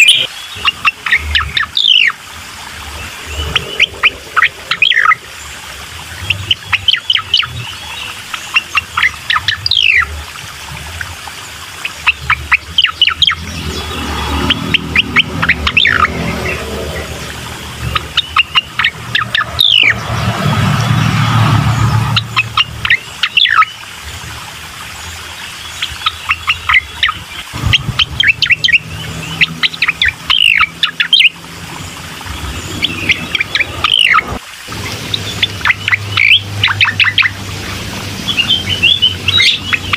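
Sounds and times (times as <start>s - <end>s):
bird chirping and trilling: 0.0s - 39.9s
low rumble: 13.4s - 22.9s, 27.5s - 35.4s.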